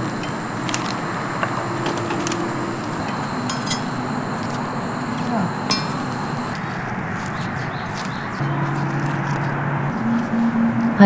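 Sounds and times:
gas burner hissing: 0.0 - 7.2.

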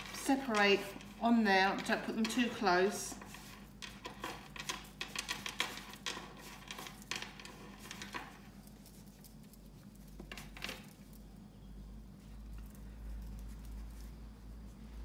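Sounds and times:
hands patting cookie dough: 0.0 - 11.1.

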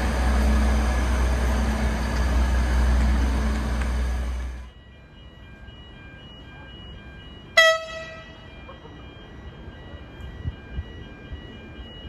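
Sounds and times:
railcar horn toot: 7.6 - 8.4.

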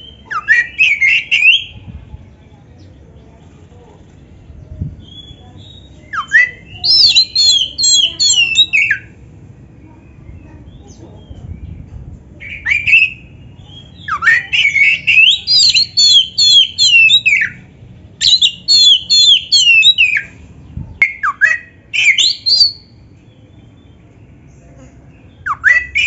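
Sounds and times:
bird singing whistled song: 0.0 - 1.8, 5.0 - 9.1, 12.4 - 17.6, 18.2 - 20.3, 21.0 - 22.9, 25.3 - 26.0.

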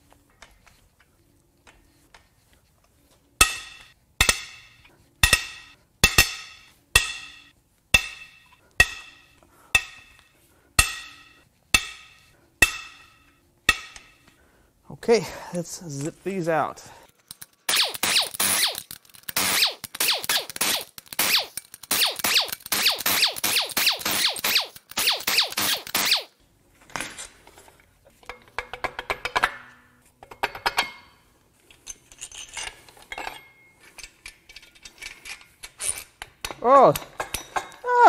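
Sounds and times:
impact wrench bursts: 17.7 - 26.3
metal clinks of bolts: 28.2 - 37.8.

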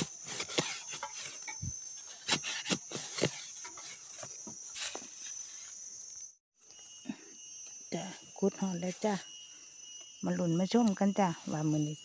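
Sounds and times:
metal bar digging into sandy soil: 0.0 - 5.7.

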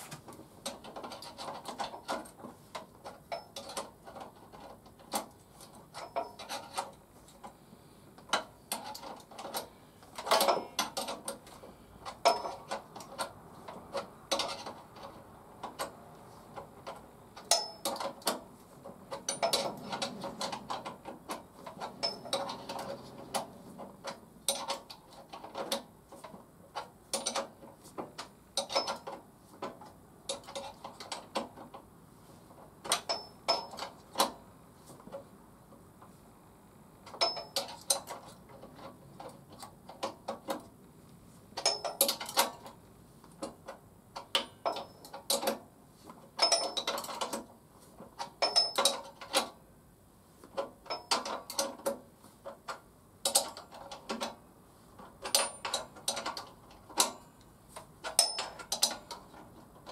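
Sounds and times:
hand tool clicking on metal: 57.8 - 59.9.

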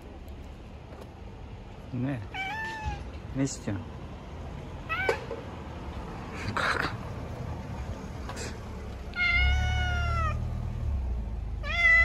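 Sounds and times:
cat meowing: 2.2 - 3.2, 4.8 - 5.3, 9.1 - 10.5, 11.6 - 12.0.

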